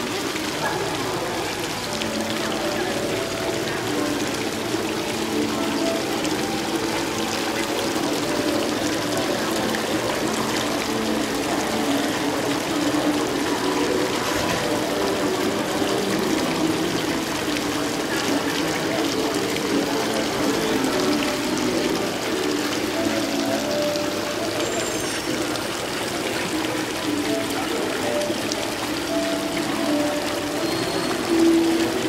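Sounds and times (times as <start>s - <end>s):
fountain water splashing: 0.0s - 32.0s.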